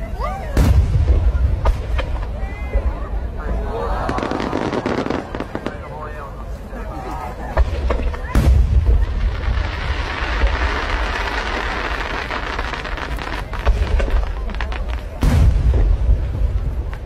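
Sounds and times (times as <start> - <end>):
fireworks crackling: 0.1 - 6.6, 7.4 - 17.0
loud firework bang: 0.6 - 2.3, 7.6 - 11.7, 13.6 - 17.0
firework cracks: 4.0 - 5.9, 7.5 - 17.0.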